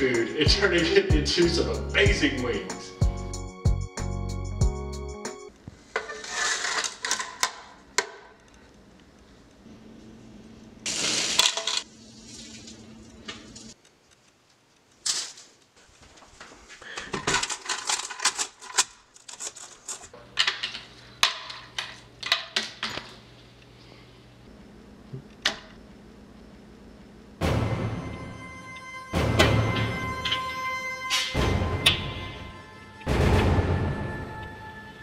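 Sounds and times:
chips sliding off plate: 0:05.8 - 0:07.3
chips clattering in plastic jar: 0:10.9 - 0:12.7, 0:17.2 - 0:20.0.

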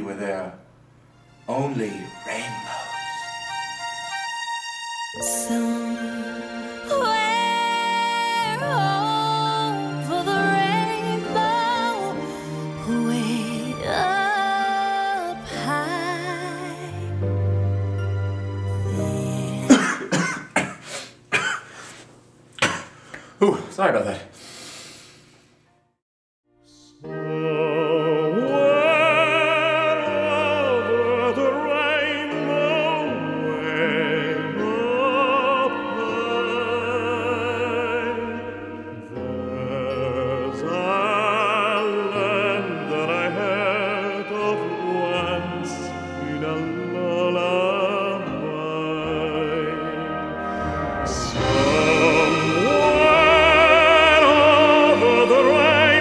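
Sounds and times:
low accompaniment: 0:01.1 - 0:14.5, 0:27.1 - 0:56.0
operatic singing: 0:01.4 - 0:20.2, 0:26.7 - 0:56.0.

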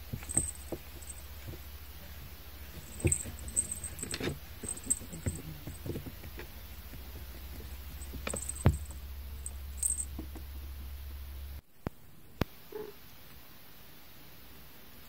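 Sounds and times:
cat scratching and knocking: 0:00.0 - 0:09.0
faint low hum: 0:00.0 - 0:15.0
loud thump: 0:08.0 - 0:09.1.

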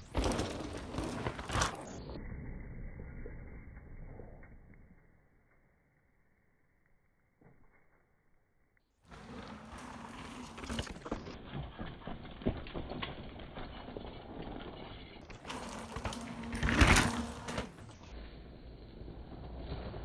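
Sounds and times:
bike tyres crunching on gravel: 0:00.0 - 0:02.0, 0:09.1 - 0:14.4, 0:15.2 - 0:20.0
rush of passing bike: 0:00.0 - 0:04.2, 0:09.1 - 0:12.4, 0:13.4 - 0:20.0
bike frame and chain rattling: 0:09.4 - 0:18.0.

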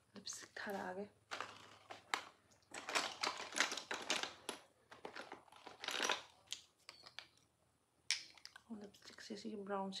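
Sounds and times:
plastic containers clicking and clattering: 0:00.7 - 0:07.4.

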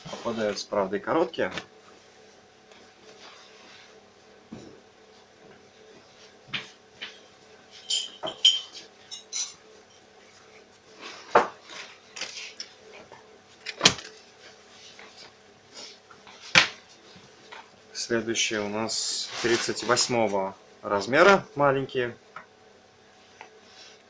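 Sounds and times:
fabric rustling and brushing: 0:01.9 - 0:04.4, 0:19.2 - 0:20.2.

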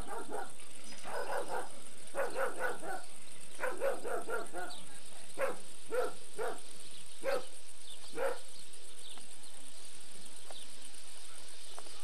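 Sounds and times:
dog barking: 0:00.0 - 0:04.8, 0:05.4 - 0:06.6, 0:07.2 - 0:07.5, 0:08.2 - 0:08.5.

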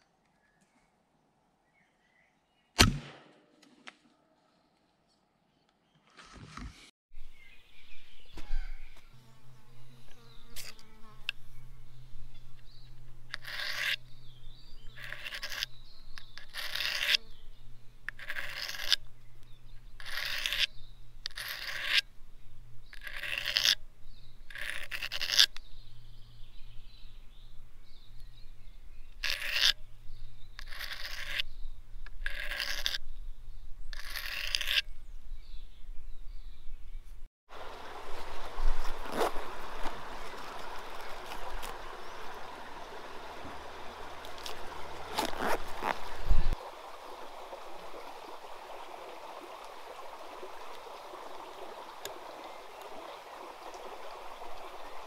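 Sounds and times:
knife blade scraping metal: 0:13.3 - 0:14.0, 0:16.4 - 0:17.2, 0:18.2 - 0:19.0, 0:20.0 - 0:22.0, 0:23.0 - 0:23.8, 0:29.2 - 0:29.8, 0:30.6 - 0:31.5, 0:32.2 - 0:33.0, 0:34.0 - 0:34.9.

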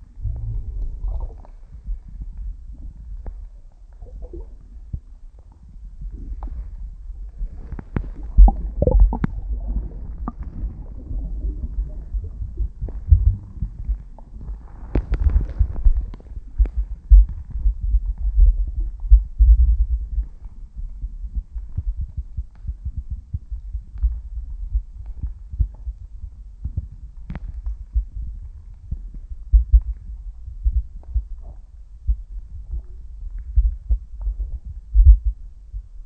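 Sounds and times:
muffled underwater rumble: 0:00.0 - 0:36.0
soft underwater thumps: 0:07.7 - 0:20.3.

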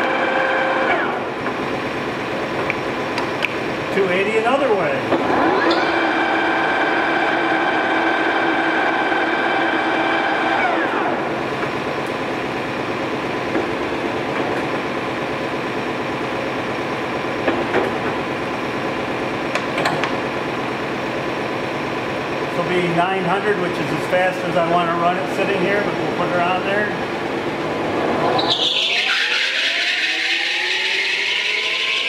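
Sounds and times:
lathe whining: 0:00.0 - 0:02.3, 0:05.1 - 0:17.5, 0:24.4 - 0:32.0
machine hum: 0:00.0 - 0:32.0.

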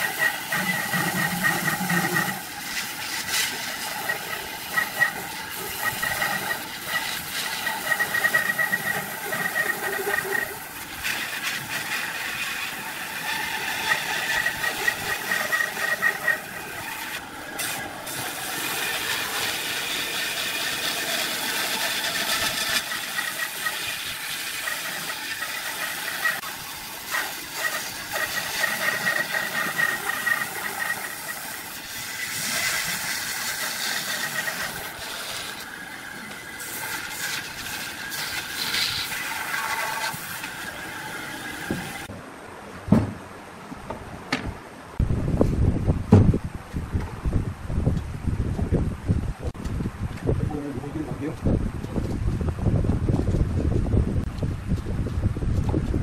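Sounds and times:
bandsaw cutting wood: 0:00.0 - 0:42.1.

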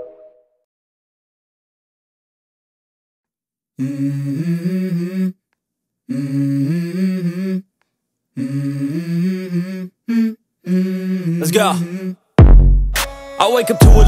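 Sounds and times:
person humming a tune: 0:03.8 - 0:05.4, 0:06.1 - 0:07.6, 0:08.4 - 0:12.2.

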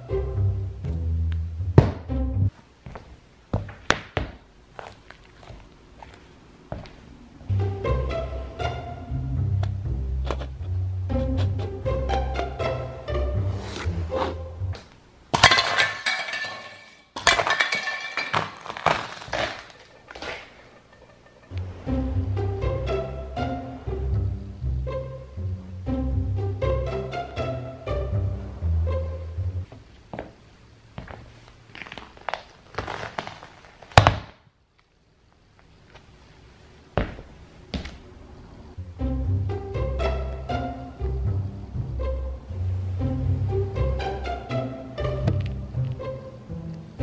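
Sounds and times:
shoe crushing toast sandwich: 0:03.6 - 0:06.9, 0:18.3 - 0:19.8, 0:31.7 - 0:34.4
brittle figurines crunching underfoot: 0:04.7 - 0:06.4, 0:17.2 - 0:20.5, 0:31.6 - 0:34.9
clinking fragments: 0:15.4 - 0:20.2.

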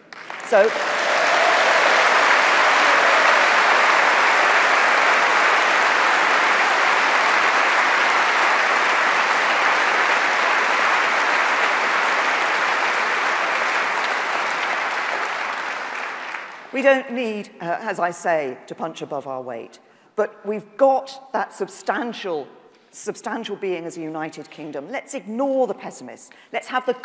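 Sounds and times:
large audience clapping: 0:00.0 - 0:16.8.

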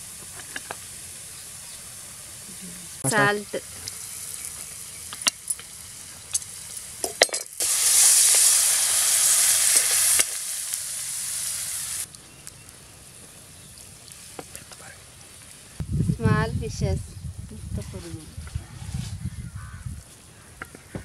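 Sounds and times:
water sizzling in hot pan: 0:00.0 - 0:16.5
spices frying in hot oil: 0:00.0 - 0:16.7.

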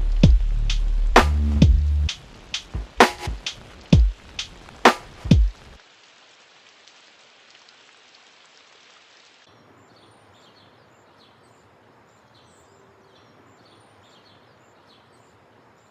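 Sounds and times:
light rain pattering: 0:00.0 - 0:15.9
small birds chirping: 0:09.5 - 0:15.9.

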